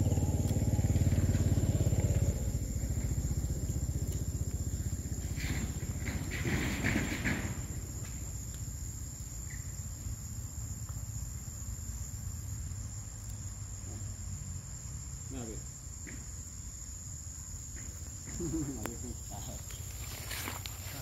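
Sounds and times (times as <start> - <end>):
steady low rumble: 0.0 - 6.3
insects droning: 0.0 - 21.0.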